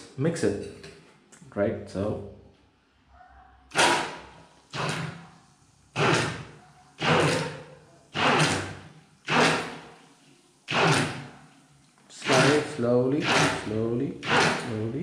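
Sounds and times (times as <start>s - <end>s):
immersion blender whirring: 3.7s - 5.2s, 5.9s - 10.0s, 10.7s - 11.5s, 12.1s - 15.0s.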